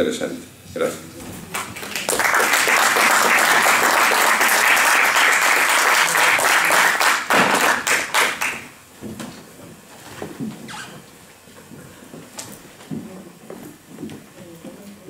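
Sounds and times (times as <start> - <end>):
audience applauding: 1.5 - 8.8.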